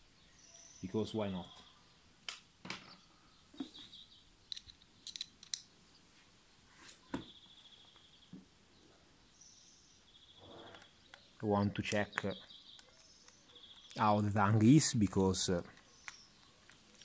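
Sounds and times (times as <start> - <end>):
bird chirping: 0.0 - 17.0.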